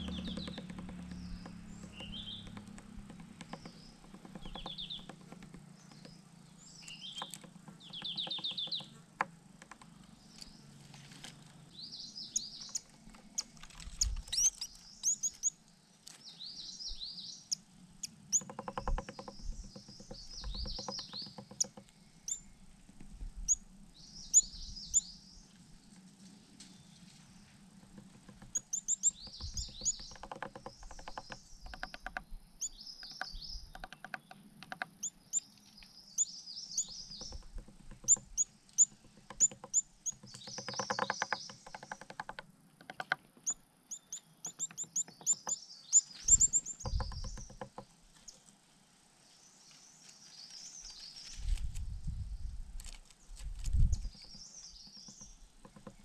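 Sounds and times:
bill tapping rapidly: 0.0s - 6.2s, 27.8s - 32.2s
bird chirping calls: 0.0s - 9.0s, 11.6s - 22.6s, 23.4s - 25.5s, 28.2s - 48.4s, 53.2s - 56.0s.

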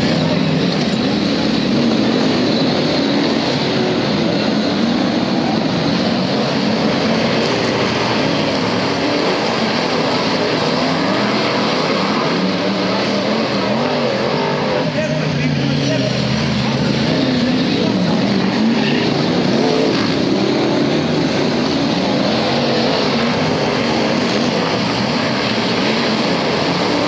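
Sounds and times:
race car engines revving: 0.0s - 27.0s.

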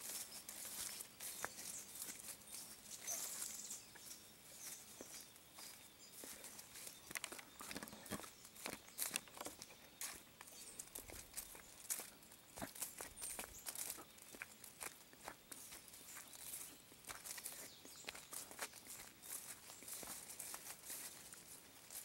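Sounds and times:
footsteps in dry leaves: 0.0s - 22.0s.

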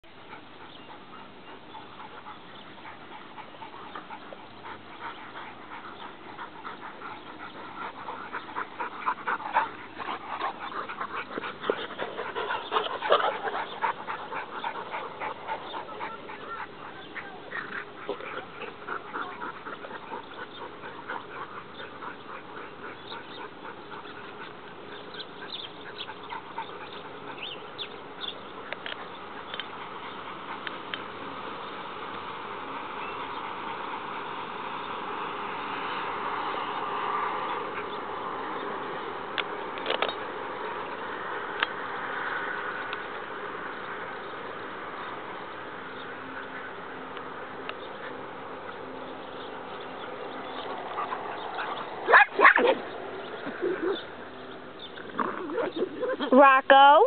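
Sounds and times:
dogs vocalizing: 0.2s - 31.8s, 45.8s - 56.5s.

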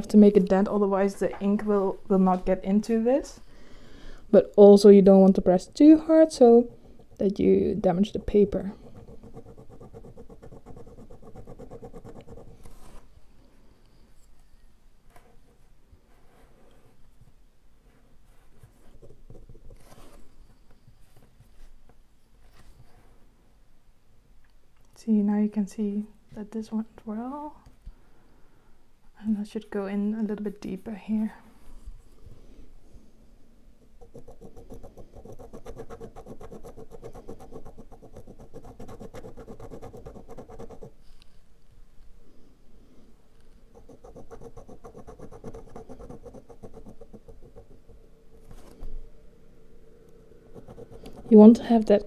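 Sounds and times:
needle scratching carton: 8.0s - 13.0s, 34.0s - 41.0s, 43.8s - 47.8s, 50.5s - 51.4s.

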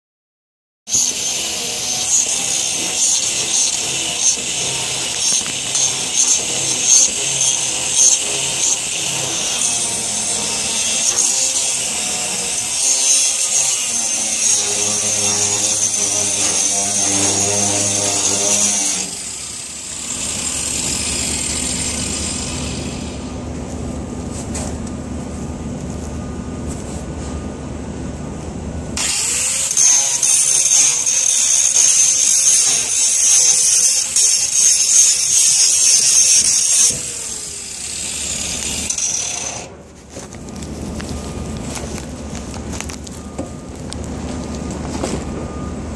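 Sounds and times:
angle grinder grinding steel: 0.9s - 23.4s, 29.0s - 39.8s.

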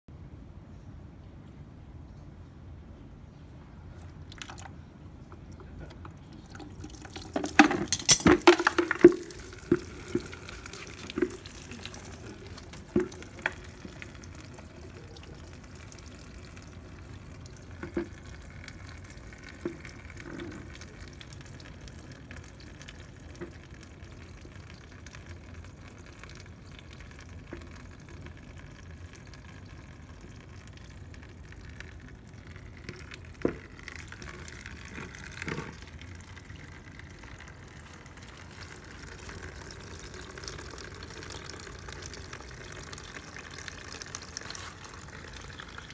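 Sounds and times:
liquid trickling into bucket: 4.0s - 4.8s, 5.4s - 45.9s
clattering knocks and splashes: 5.3s - 14.8s, 17.7s - 21.0s.

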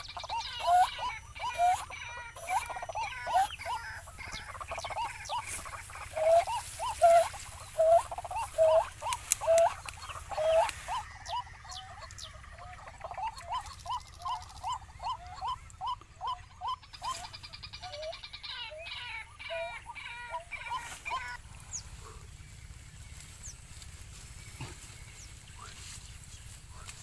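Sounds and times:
waterhen harsh calls: 0.0s - 21.4s.

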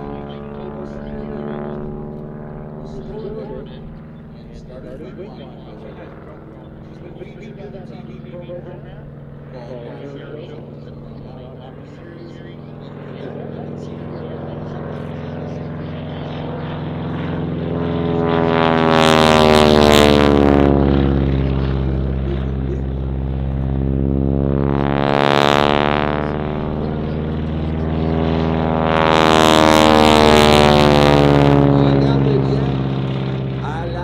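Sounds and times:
biplane engine and propeller drone: 0.0s - 34.0s.

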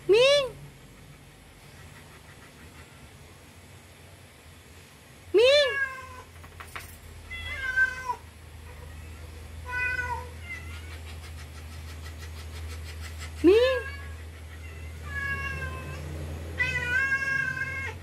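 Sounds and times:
cat meowing: 7.3s - 10.9s, 13.8s - 16.0s, 16.6s - 18.0s.

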